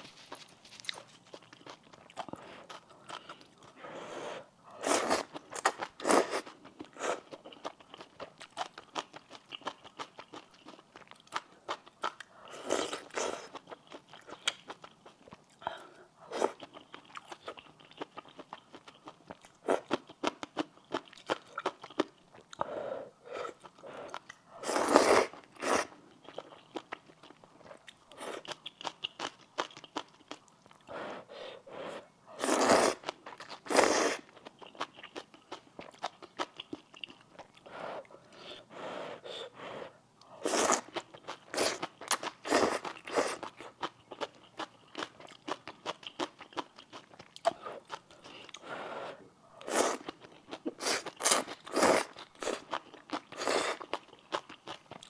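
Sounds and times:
wet chewing and mouth clicks: 0.1 - 3.8, 5.1 - 15.6, 16.4 - 22.7, 23.5 - 30.9, 32.5 - 37.7, 40.2 - 48.6, 49.6 - 55.0
slurping noodles: 23.4 - 25.9, 31.5 - 34.3, 48.8 - 50.1.

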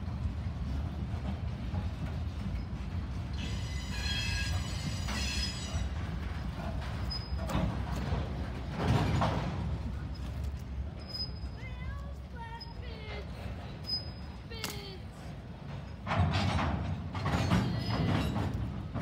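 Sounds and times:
freight train rumble: 0.0 - 19.0
steel wheels squealing on rails: 2.0 - 19.0.

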